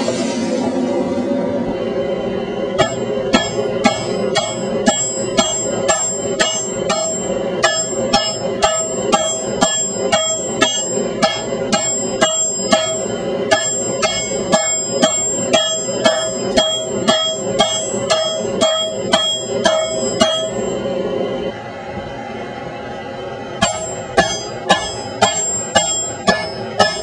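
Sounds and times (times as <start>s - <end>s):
hammer ringing on anvil: 2.8s - 20.8s, 23.6s - 27.0s.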